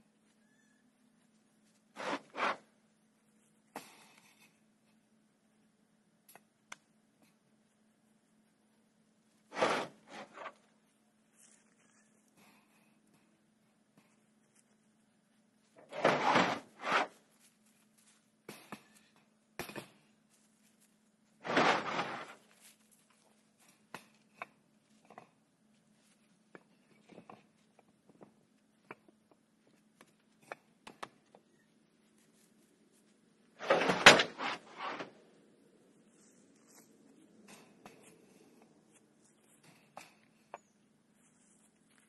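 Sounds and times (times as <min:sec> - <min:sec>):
cinder blocks scraping and knocking: 0:01.9 - 0:02.7, 0:09.5 - 0:10.6, 0:15.8 - 0:17.1, 0:21.4 - 0:22.4, 0:33.6 - 0:35.2.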